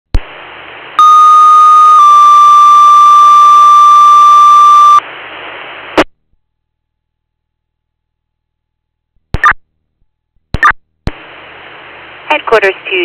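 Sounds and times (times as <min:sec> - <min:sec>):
radio static hiss: 0:00.1 - 0:06.1, 0:10.6 - 0:13.0
two-tone paging alert: 0:01.0 - 0:05.0.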